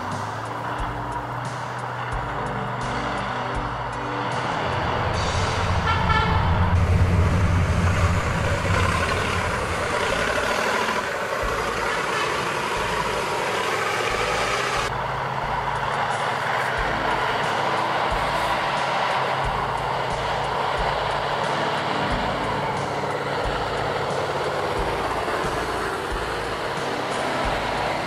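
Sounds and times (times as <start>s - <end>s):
diesel truck engines under load: 0.0s - 28.0s
horn toot: 5.1s - 11.0s.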